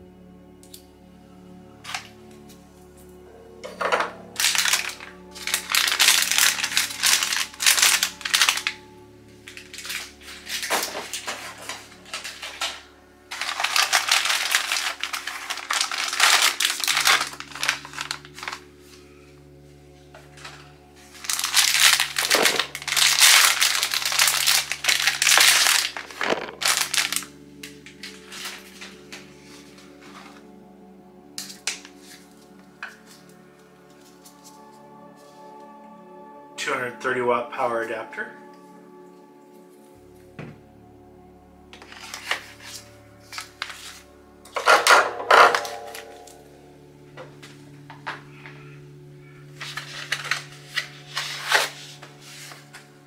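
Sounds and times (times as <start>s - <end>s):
soft background music: 0.0s - 53.0s
plastic packaging crinkling: 4.2s - 18.7s, 20.3s - 29.3s, 41.8s - 46.5s, 49.5s - 52.9s.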